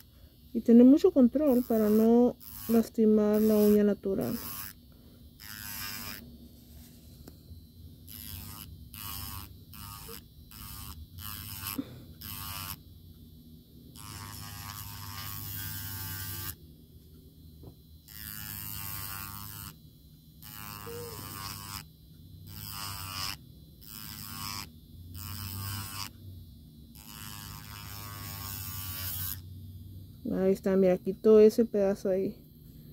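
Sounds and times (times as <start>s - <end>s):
electric nail drill humming: 0.0s - 32.9s
drill bit grinding on nail: 1.0s - 6.9s, 8.0s - 13.0s, 13.9s - 16.6s, 18.0s - 26.2s, 26.9s - 29.5s.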